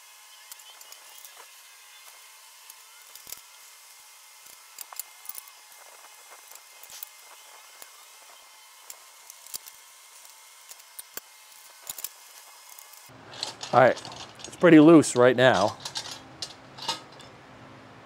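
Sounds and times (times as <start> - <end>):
metallic clicks and clinks: 12.7 - 17.4.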